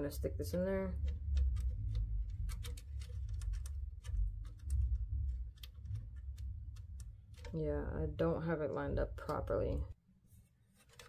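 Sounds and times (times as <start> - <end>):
low handling rumble: 0.0 - 10.0
small plastic clicks and taps: 0.4 - 7.6.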